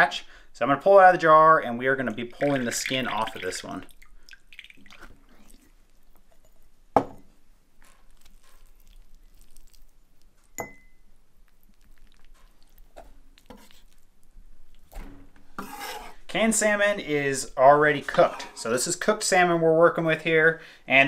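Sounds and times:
glass jar knocking on board: 7.0s - 7.3s
wet sounds of skin pulled off: 8.1s - 10.3s
sharp glass clink: 10.6s - 11.0s.

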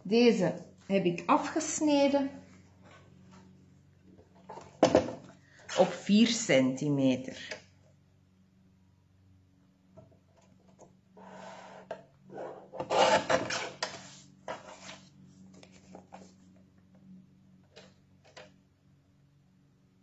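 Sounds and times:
paper trimmer blade cutting: 12.8s - 13.8s.

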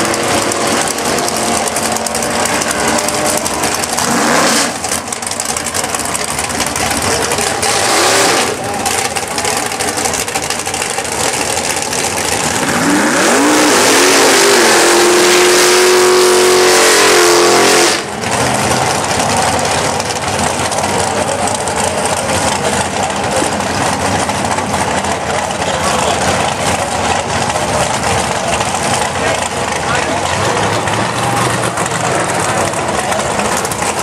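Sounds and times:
engines rumbling: 0.0s - 34.0s
race car engine revving: 0.0s - 34.0s.

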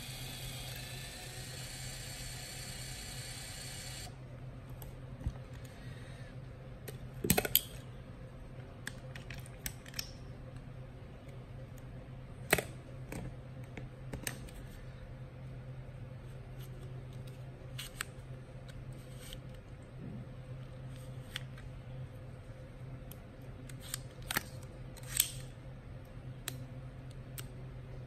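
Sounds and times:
camera motor whirring: 0.0s - 4.1s.

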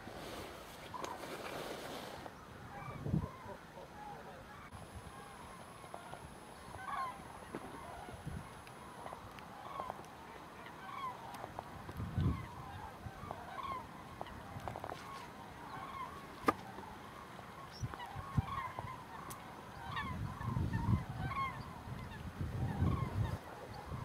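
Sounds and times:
cranes trumpeting calls: 2.1s - 24.0s.

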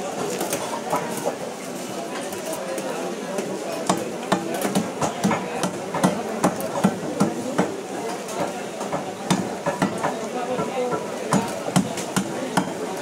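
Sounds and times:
blade chopping fish on wood: 3.9s - 7.8s.

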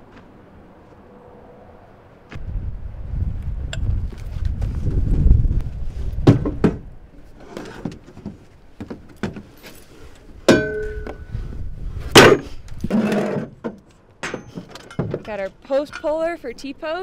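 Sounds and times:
metal clank ringing: 10.5s - 11.2s.

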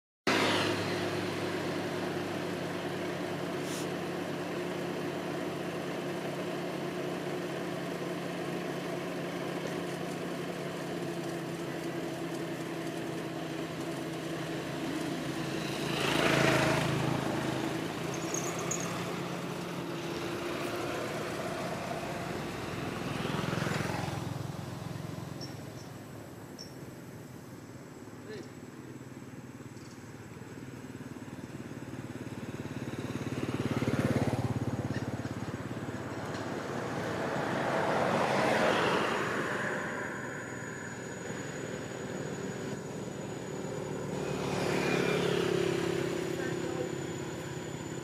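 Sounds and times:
motorbike engine idling: 0.8s - 36.8s
vehicle passing: 11.2s - 27.2s, 30.5s - 48.0s.

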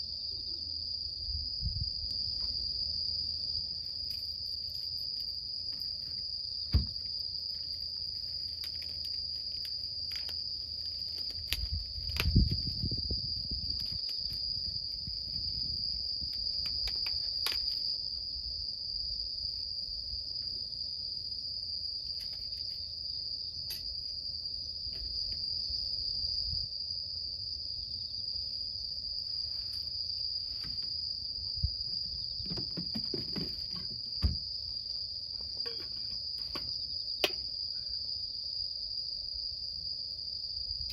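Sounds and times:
high-pitched insect chorus: 0.0s - 40.9s
knocks and thumps: 6.7s - 7.1s, 31.6s - 34.5s.

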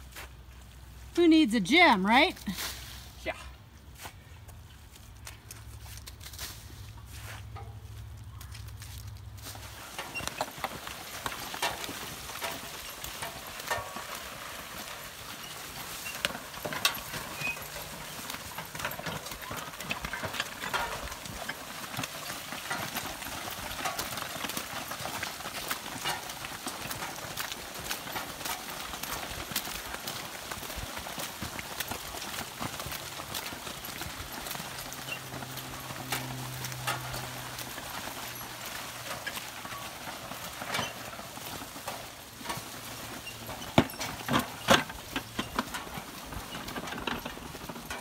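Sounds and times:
horse hooves clopping: 3.3s - 48.0s
knocks and clanks: 16.1s - 24.1s, 38.2s - 48.0s.

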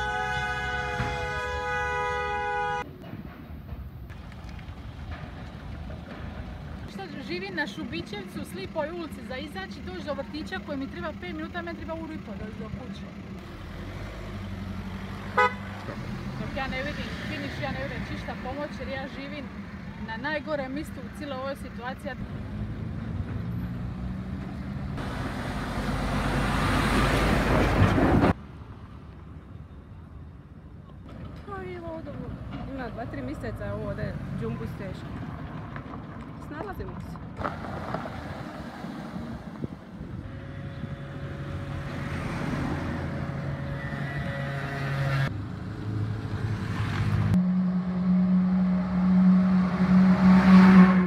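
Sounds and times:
heavy truck passing: 0.0s - 28.6s, 31.0s - 51.0s
cars driving past: 0.0s - 29.3s, 30.9s - 51.0s
vehicle engine humming: 0.0s - 51.0s.

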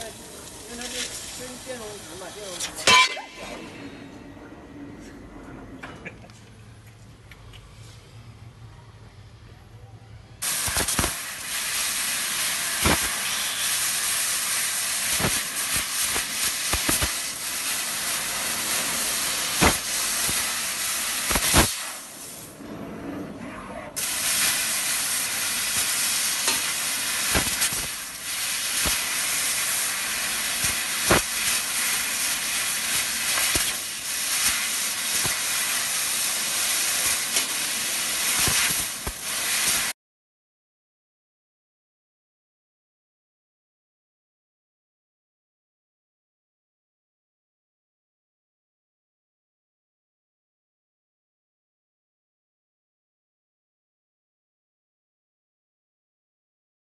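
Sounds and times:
sharp cracks: 10.4s - 11.3s, 12.8s - 13.2s, 15.1s - 17.2s, 19.6s - 20.5s, 21.2s - 21.8s, 25.7s - 29.1s, 30.6s - 32.0s, 32.9s - 35.5s
laser cutter hissing: 10.4s - 22.4s, 24.0s - 39.9s.

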